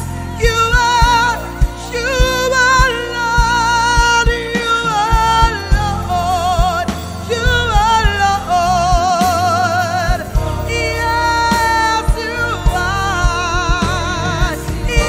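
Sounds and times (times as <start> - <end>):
band playing steady beat: 0.0 - 15.0
woman singing with vibrato: 0.0 - 15.0.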